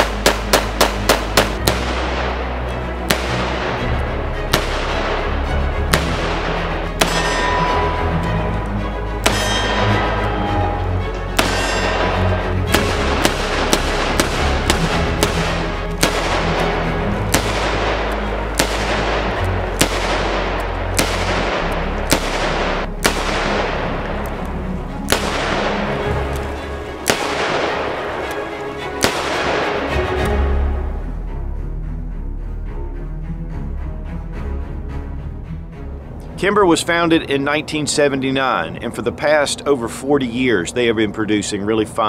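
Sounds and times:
revolver gunshots echoing: 0:00.0 - 0:08.4, 0:09.2 - 0:30.2
background music: 0:00.0 - 0:42.0.

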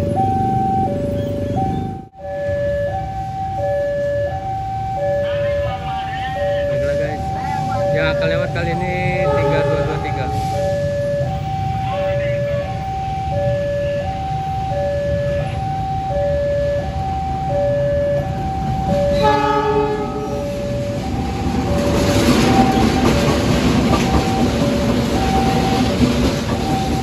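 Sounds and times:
locomotive engines rumbling: 0:00.0 - 0:27.0
two-tone warning alarm: 0:00.0 - 0:27.0
train horn blast: 0:09.2 - 0:10.6, 0:19.1 - 0:20.4
train wheel noise: 0:16.8 - 0:27.0.

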